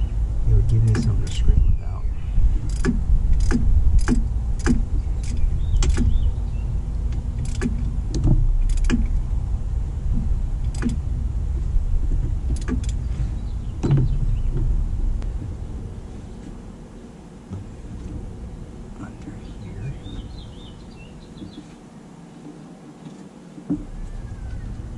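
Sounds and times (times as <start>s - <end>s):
steady low rumble: 0.0s - 24.9s
tools clicking and knocking: 2.6s - 6.1s, 7.4s - 9.1s, 10.6s - 11.0s, 12.5s - 13.0s.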